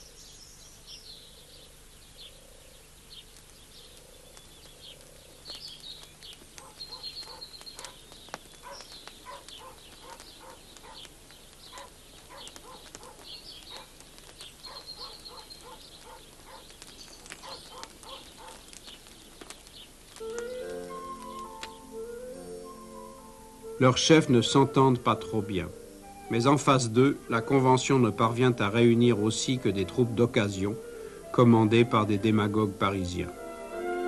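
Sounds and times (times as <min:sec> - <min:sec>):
birds chirping and trilling: 0:00.0 - 0:34.0
evenly spaced low notes: 0:20.3 - 0:34.0.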